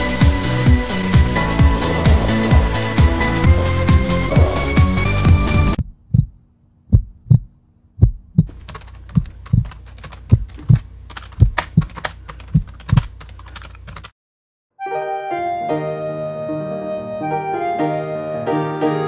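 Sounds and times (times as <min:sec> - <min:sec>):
heartbeat thumps: 0:01.5 - 0:13.0
keyboard typing clicks: 0:08.4 - 0:14.1.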